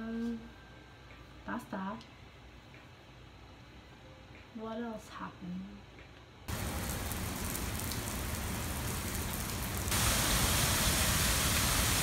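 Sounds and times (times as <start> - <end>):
fountain water splashing: 6.5 - 12.0.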